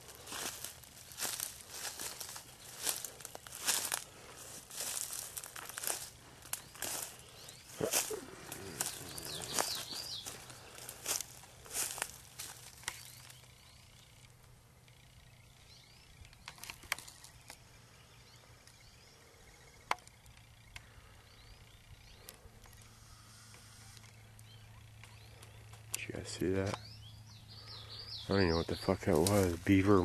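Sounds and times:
twigs snapping: 0.0s - 13.4s, 29.2s - 29.5s
footsteps through brush: 0.0s - 14.3s, 16.3s - 17.7s, 27.6s - 30.0s
bird chirps: 0.0s - 30.0s
low steady hum: 0.0s - 30.0s.

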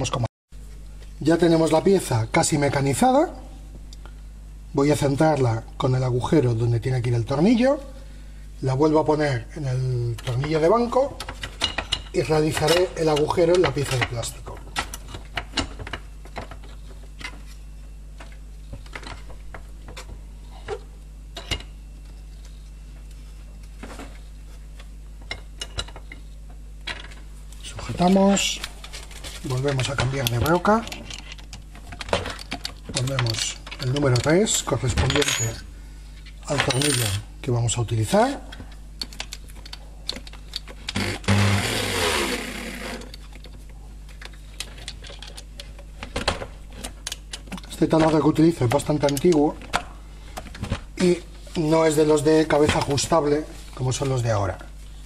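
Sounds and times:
steady low hum: 0.0s - 55.0s
electric drill motor whirring: 41.0s - 43.1s.

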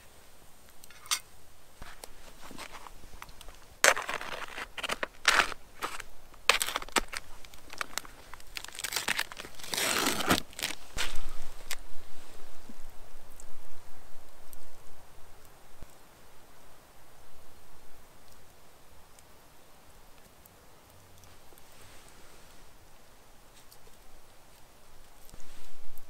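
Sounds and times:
dry material rustling and crunching: 1.8s - 11.9s.

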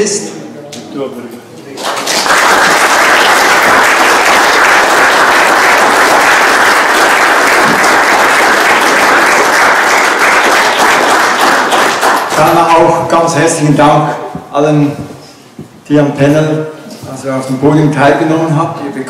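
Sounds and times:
audience applauding: 1.7s - 12.9s.

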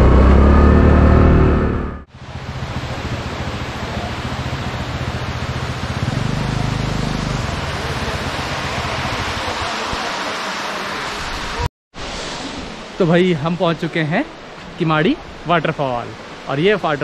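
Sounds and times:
scooter engine humming: 0.0s - 10.4s.

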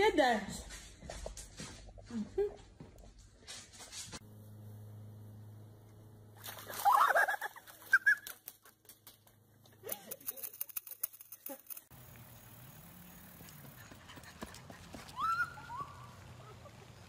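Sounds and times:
water splashing: 6.4s - 9.0s.

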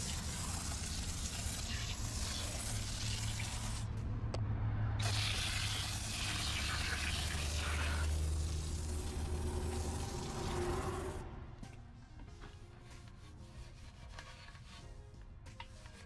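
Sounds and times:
liquid spraying in hissing jet: 0.0s - 3.9s, 5.0s - 11.2s.

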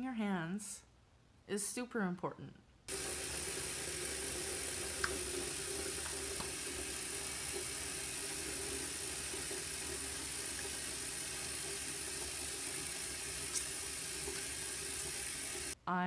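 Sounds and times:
faucet water running into sink: 2.9s - 15.8s.

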